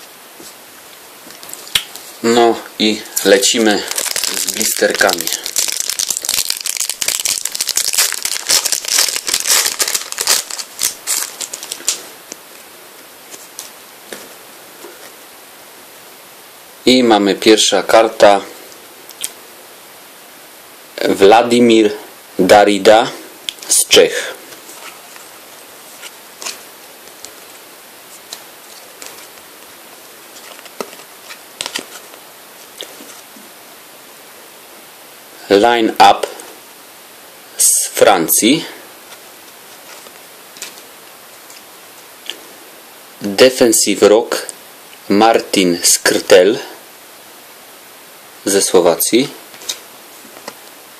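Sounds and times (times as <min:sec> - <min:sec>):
steady hiss: 0:00.0 - 0:50.9
foil packet crinkling: 0:03.2 - 0:12.4
cards flicking and rustling: 0:03.4 - 0:12.4, 0:28.2 - 0:29.4, 0:30.4 - 0:32.2, 0:49.5 - 0:50.6.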